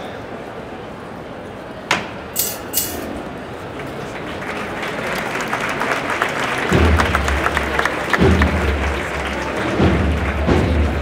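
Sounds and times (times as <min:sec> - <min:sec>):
street crowd: 0:00.0 - 0:11.0
applause: 0:03.6 - 0:11.0.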